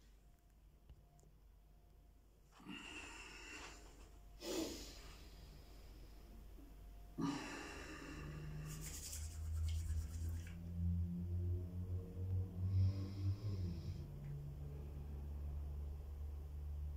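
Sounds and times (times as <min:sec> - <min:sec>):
low droning tone: 0:04.7 - 0:16.9.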